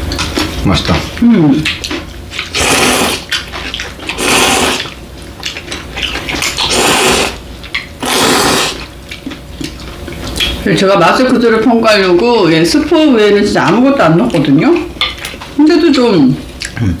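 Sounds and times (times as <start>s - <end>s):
slurping noodles: 2.4s - 5.0s, 6.4s - 7.4s, 8.0s - 9.0s.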